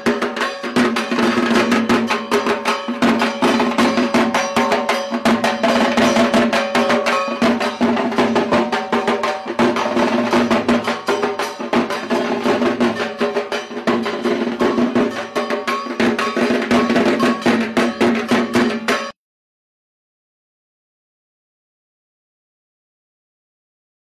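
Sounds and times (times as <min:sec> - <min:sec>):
music with fast dense drumming: 0:00.0 - 0:19.1.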